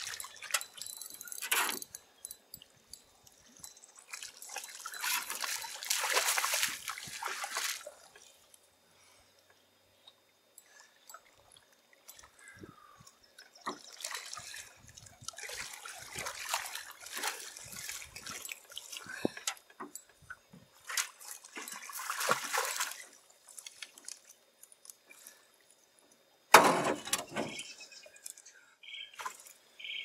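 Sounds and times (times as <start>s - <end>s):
water splashing: 0.0s - 0.7s, 3.9s - 8.4s, 13.6s - 19.4s, 20.8s - 24.3s.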